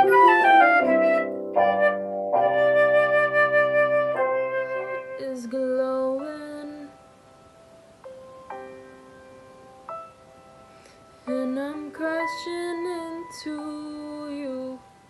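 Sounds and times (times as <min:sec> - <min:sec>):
flute melody: 0:00.0 - 0:05.9.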